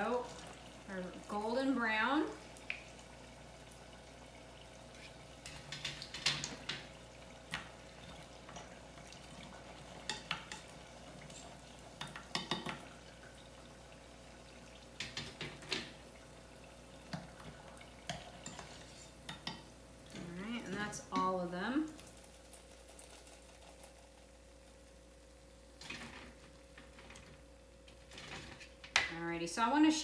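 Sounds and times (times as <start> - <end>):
frying oil sizzling: 0.0 - 23.4.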